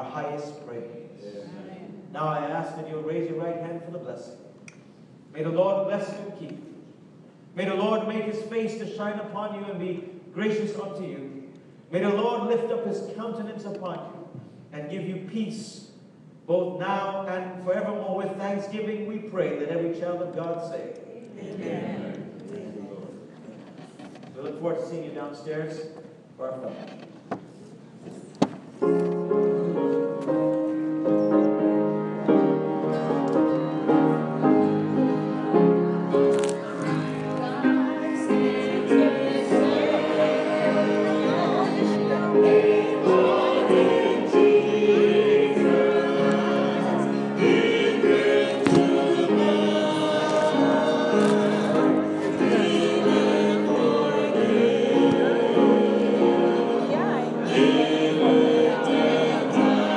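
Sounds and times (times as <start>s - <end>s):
click: 4.6s - 4.8s
choir singing a hymn: 21.4s - 23.1s, 29.6s - 59.9s
keyboard instrument playing slow chords: 29.2s - 59.9s.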